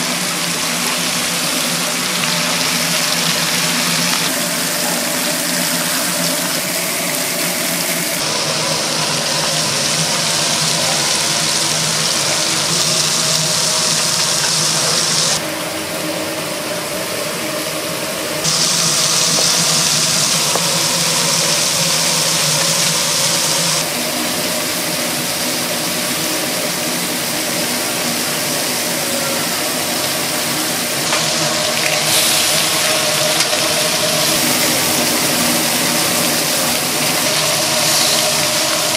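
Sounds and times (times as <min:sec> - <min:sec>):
mechanical hum: 0:00.0 - 0:38.9
loud hiss: 0:18.4 - 0:23.9, 0:30.2 - 0:38.9.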